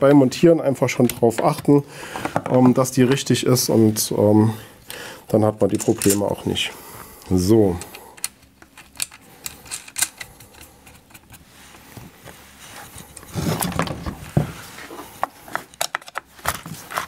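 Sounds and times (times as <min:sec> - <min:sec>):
metallic clicks and scrapes: 0:07.8 - 0:11.5.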